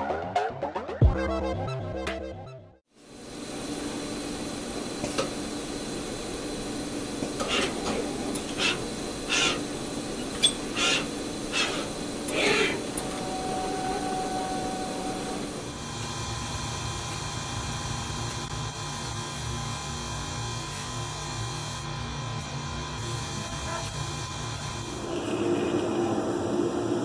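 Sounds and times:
electronic music: 0:00.0 - 0:02.8
assembly machine hum and hiss: 0:02.9 - 0:27.0
machinery hiss bursts: 0:03.0 - 0:15.8.

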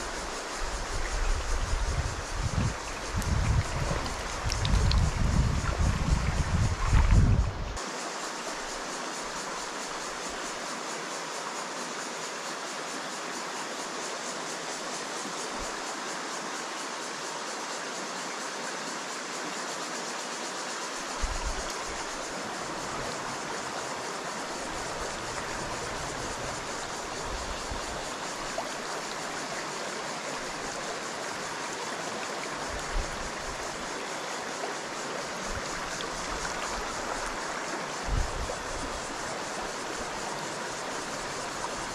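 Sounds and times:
stream running over pebbles: 0:00.0 - 0:10.6, 0:20.9 - 0:41.9.

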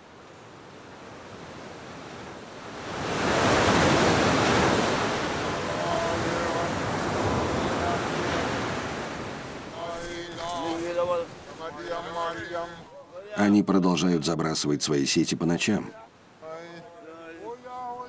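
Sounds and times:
ocean surf breaking on rocks: 0:00.0 - 0:13.4.

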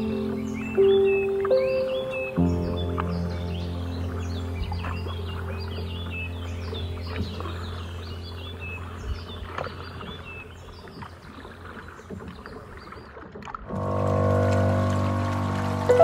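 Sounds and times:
low background music: 0:00.0 - 0:09.4
small birds chirping: 0:00.0 - 0:13.2
paddle splashes: 0:00.0 - 0:16.0
water lapping around a kayak: 0:00.0 - 0:16.0.

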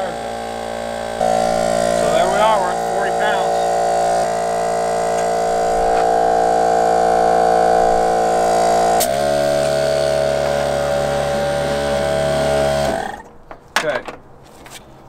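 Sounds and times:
air compressor humming: 0:00.0 - 0:13.3
compressor click: 0:08.8 - 0:11.2.

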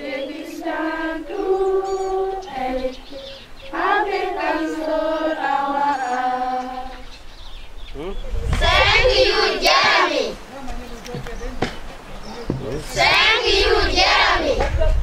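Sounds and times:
girls' choir singing: 0:00.0 - 0:07.1, 0:08.6 - 0:10.4, 0:12.8 - 0:15.0.

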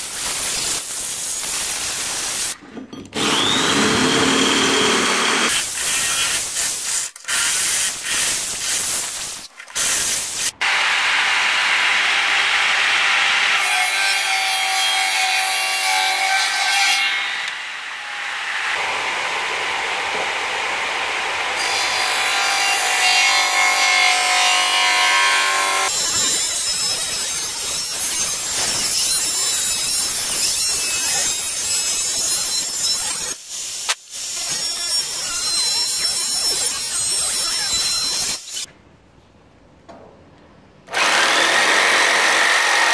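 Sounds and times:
jointer planer cutting wood: 0:03.2 - 0:05.5.

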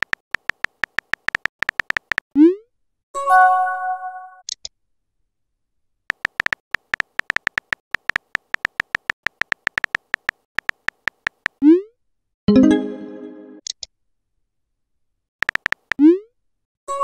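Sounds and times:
keyboard typing beeps: 0:00.0 - 0:02.2, 0:06.1 - 0:11.6, 0:15.4 - 0:16.0.

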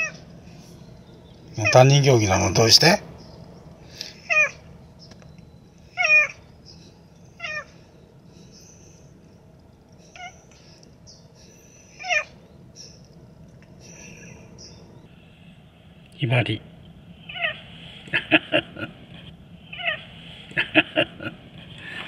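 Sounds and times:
cat meowing: 0:04.2 - 0:04.6, 0:06.0 - 0:06.4, 0:07.4 - 0:07.7, 0:12.0 - 0:12.3, 0:17.2 - 0:17.6, 0:19.7 - 0:20.1.

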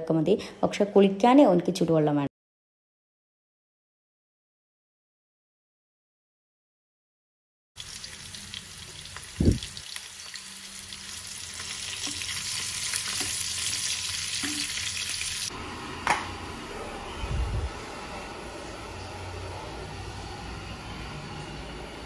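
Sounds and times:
chicken sizzling in oil: 0:07.8 - 0:15.5.

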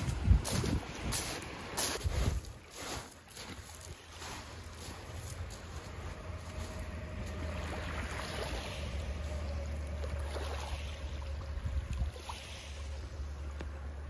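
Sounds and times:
low wind rumble on microphone: 0:00.0 - 0:01.4, 0:05.2 - 0:14.0
small waves lapping on pebbles: 0:00.1 - 0:14.0.

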